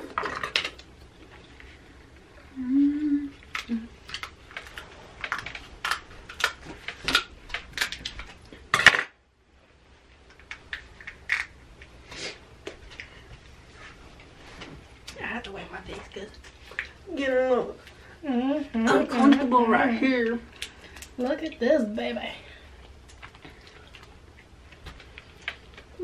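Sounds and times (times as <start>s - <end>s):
person humming: 2.4s - 4.0s.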